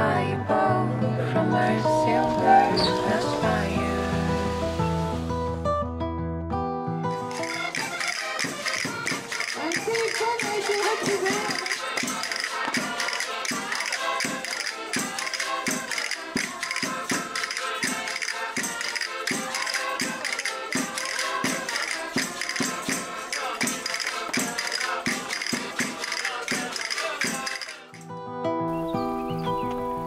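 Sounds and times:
folk dance music on accordion: 0:07.1 - 0:28.0
tambourine jingling: 0:07.3 - 0:28.2.

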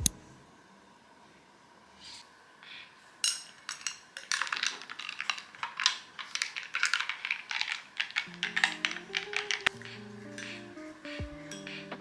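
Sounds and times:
small hard objects clicking: 0:03.2 - 0:10.6.

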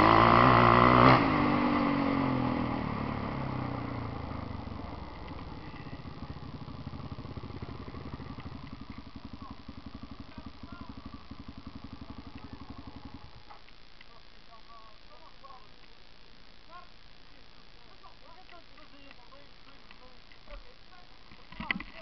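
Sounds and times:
quad bike engine idling: 0:00.0 - 0:13.6.

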